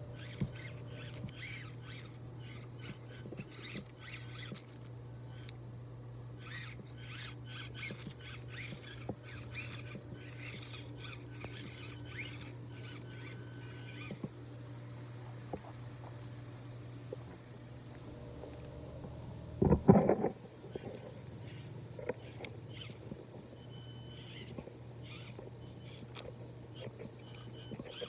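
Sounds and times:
tyres squeaking and scraping on wood: 0:00.0 - 0:05.6, 0:06.4 - 0:14.4, 0:19.6 - 0:28.0
small electric motor whining: 0:00.0 - 0:28.0.

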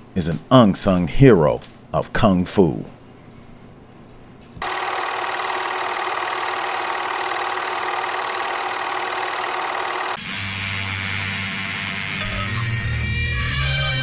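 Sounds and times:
film projector clattering: 0:04.6 - 0:10.2
music: 0:10.2 - 0:14.0.

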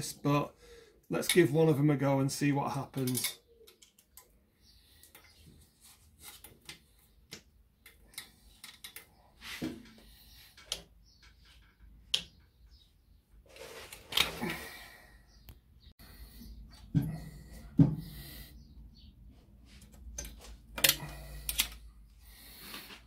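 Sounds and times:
metallic clicks and scrapes: 0:19.8 - 0:21.9.

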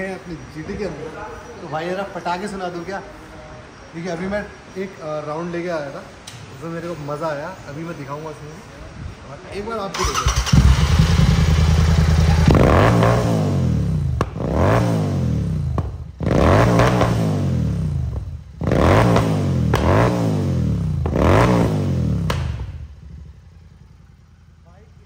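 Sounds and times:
exhaust pops: 0:10.0 - 0:20.2, 0:20.8 - 0:23.0
motorcycle engine revving: 0:10.0 - 0:25.0.

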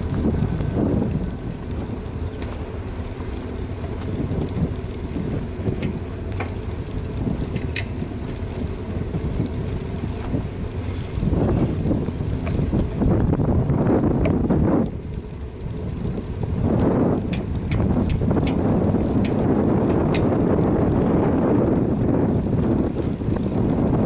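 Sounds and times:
faint clicks: 0:00.0 - 0:02.7
wind buffeting microphone: 0:00.0 - 0:24.0.

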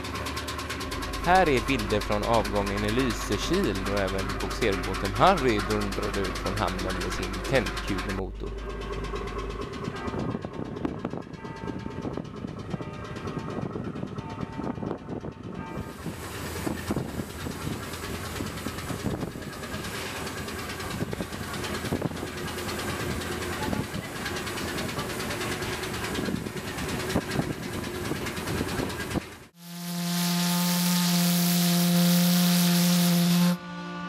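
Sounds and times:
boat engine thudding: 0:00.0 - 0:29.6
wind: 0:00.0 - 0:34.0
steam hissing: 0:15.9 - 0:26.8
steam whistle blast: 0:29.6 - 0:34.0.

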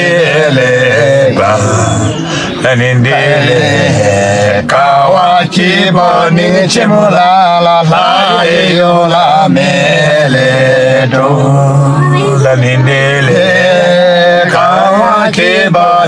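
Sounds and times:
men singing chant-like folk song: 0:00.0 - 0:16.0.

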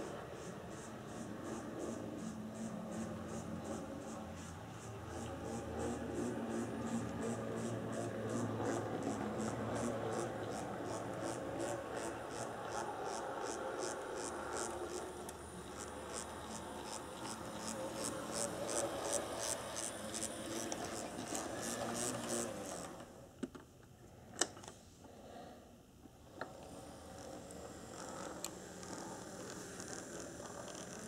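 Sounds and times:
model train motor whirring: 0:00.0 - 0:23.2, 0:26.3 - 0:31.0.

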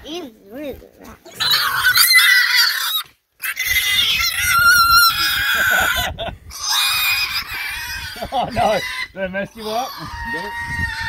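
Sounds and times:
piglet squealing: 0:01.3 - 0:11.0.

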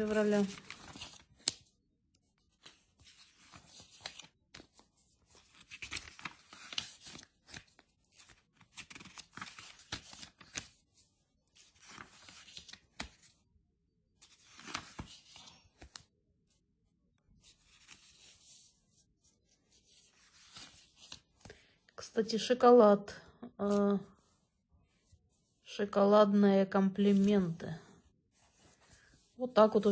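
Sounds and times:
glossy paper pages rustling: 0:00.0 - 0:13.4, 0:14.2 - 0:16.6, 0:17.3 - 0:21.8, 0:26.9 - 0:27.6, 0:28.3 - 0:29.9.

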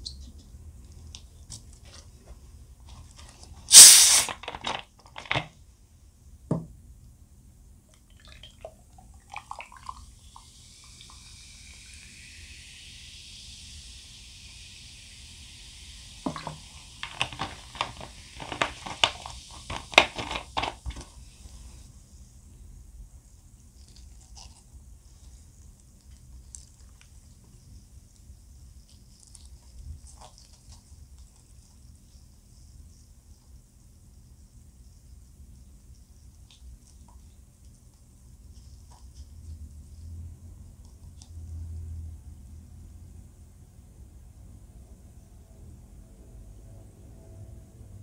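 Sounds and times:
steady hiss: 0:03.6 - 0:04.4, 0:09.8 - 0:40.1
soft chewing: 0:23.4 - 0:32.0.

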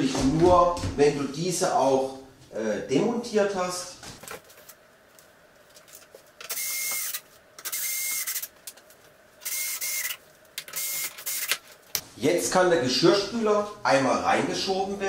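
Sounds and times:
cordless drill whirring: 0:06.5 - 0:08.5, 0:09.4 - 0:11.6.

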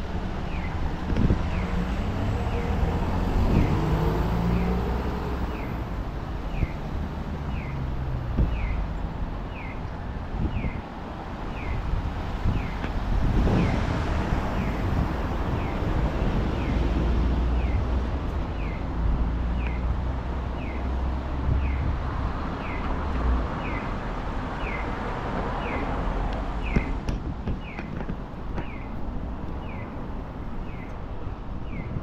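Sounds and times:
passing vehicle rumble: 0:00.0 - 0:32.0
street traffic: 0:00.0 - 0:32.0.

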